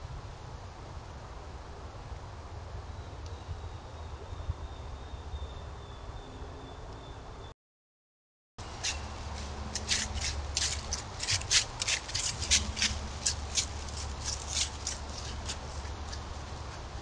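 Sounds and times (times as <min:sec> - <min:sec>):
dry leaves crunching: 0:08.6 - 0:17.0
steady low hum: 0:08.6 - 0:17.0.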